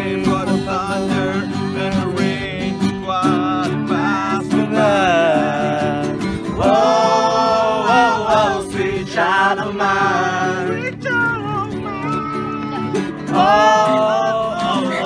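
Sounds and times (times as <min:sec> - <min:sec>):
acoustic guitar strumming chords: 0:00.0 - 0:15.0
person singing: 0:04.5 - 0:15.0.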